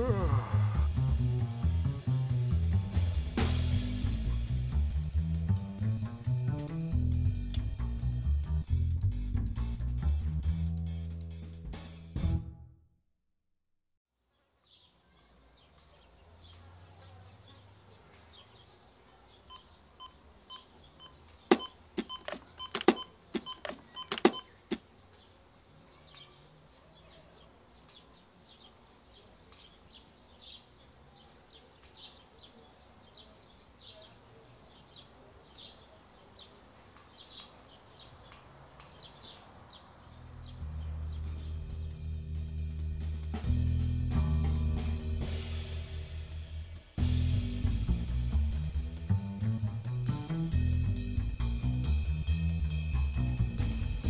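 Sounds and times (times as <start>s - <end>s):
faint high chirps: 19.1s - 24.8s
sharp electronic beeps and clicks: 21.5s - 24.5s.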